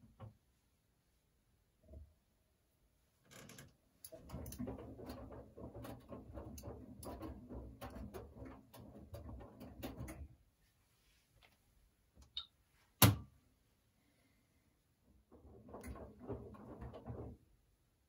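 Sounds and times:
washing machine clatter and rattles: 3.5s - 10.5s, 15.1s - 17.8s
washing machine motor hum: 4.1s - 10.4s, 15.3s - 17.5s.

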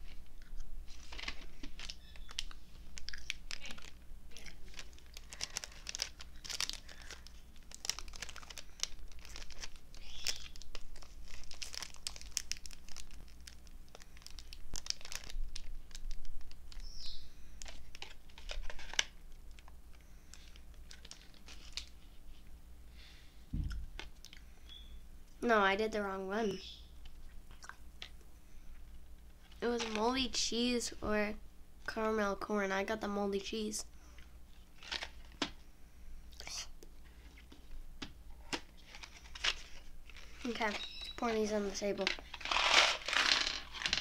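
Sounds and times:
packaging crinkling and rustling: 0.0s - 22.4s, 29.2s - 30.2s, 34.6s - 35.6s, 38.4s - 44.0s.

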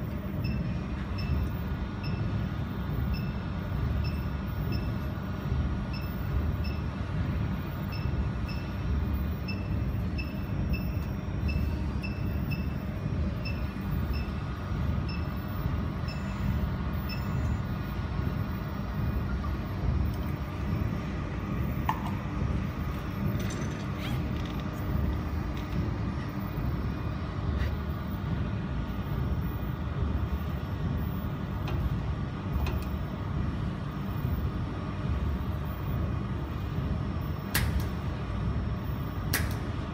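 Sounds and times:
cooling fan humming: 0.0s - 39.9s
faint high beeps: 9.4s - 14.4s, 15.0s - 17.7s.

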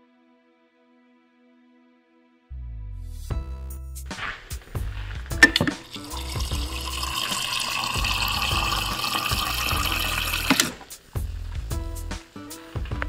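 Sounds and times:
water pouring into plastic cup: 5.4s - 10.9s.

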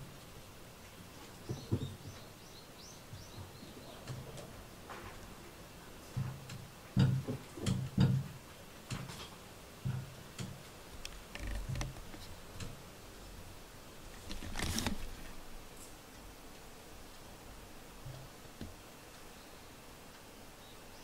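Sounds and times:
light taps and soft thumps: 6.1s - 12.3s
brief rustle: 14.1s - 16.0s.

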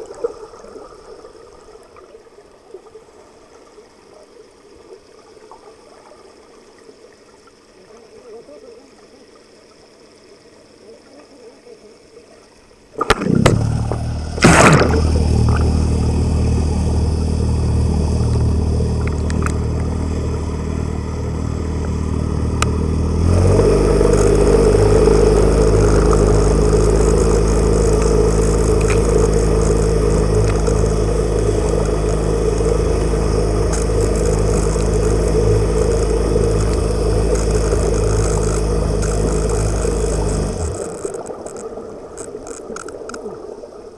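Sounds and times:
faint water noise: 0.0s - 43.9s
boat motor humming underwater: 12.0s - 43.9s.

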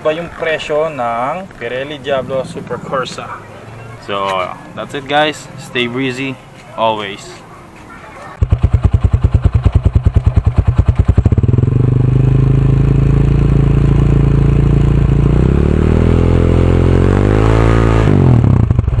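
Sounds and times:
motorcycle engine revving: 8.4s - 19.0s.

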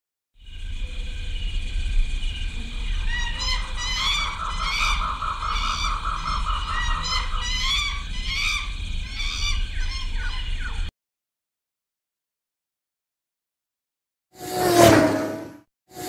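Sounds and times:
steady low hum: 0.4s - 10.9s
high squawking animal calls: 2.3s - 10.9s.

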